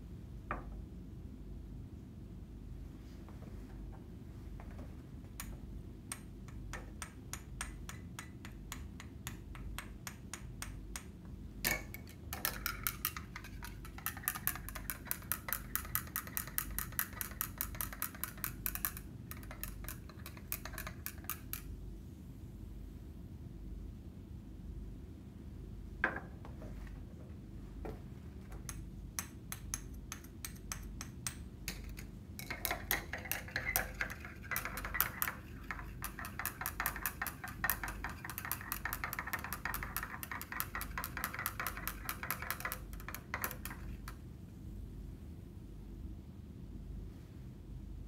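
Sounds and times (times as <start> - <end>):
glass rod clinking in beaker: 11.7 - 21.7, 28.7 - 43.9.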